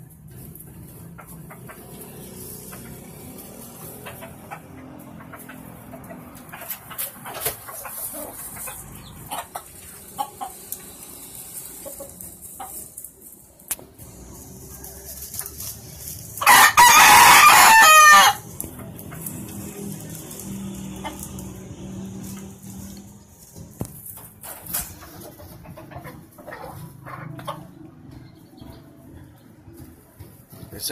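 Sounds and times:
rooster crowing: 16.4s - 18.5s.

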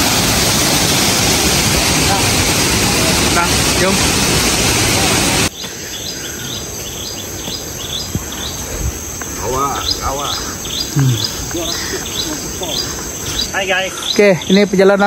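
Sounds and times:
loud rushing noise: 0.0s - 5.5s
high insect drone: 0.0s - 15.0s.

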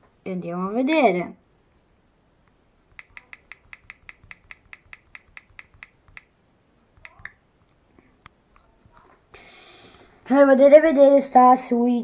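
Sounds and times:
on-screen keyboard clicks: 2.9s - 6.4s, 7.0s - 7.8s.

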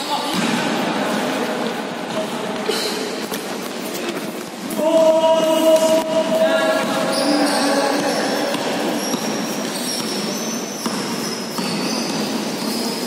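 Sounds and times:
echoing hubbub of crowd: 0.0s - 13.0s
basketball bouncing on hard court: 7.8s - 13.0s.

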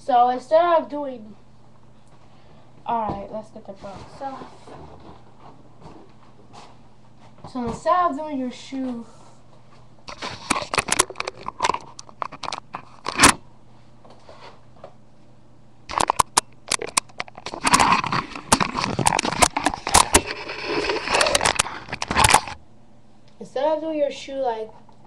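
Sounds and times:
camera handling noise: 15.9s - 22.6s.

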